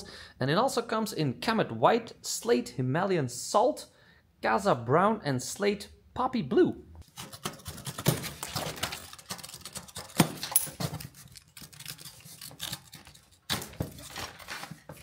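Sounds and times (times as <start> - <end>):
knife cutting plastic strapping: 7.0 - 15.0
scraping and rustling: 7.1 - 15.0.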